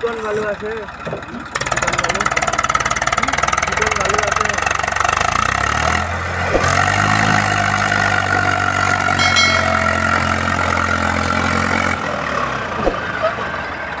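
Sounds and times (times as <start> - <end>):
tractor diesel engine running: 0.0 - 6.9.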